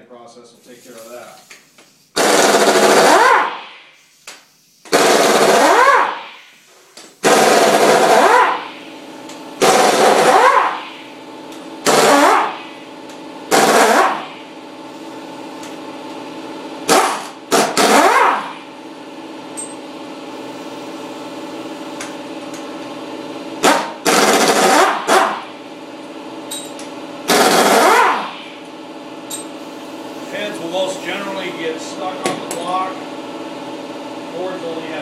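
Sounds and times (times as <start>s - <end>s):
pneumatic impact wrench bursts: 0.7s - 15.8s, 16.8s - 18.7s, 23.6s - 25.5s, 26.5s - 28.6s, 29.3s - 31.5s
steady machine hum: 2.0s - 35.0s.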